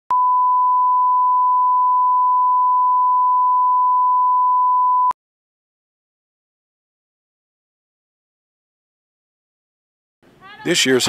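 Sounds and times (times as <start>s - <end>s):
pure reference tone: 0.1s - 5.2s.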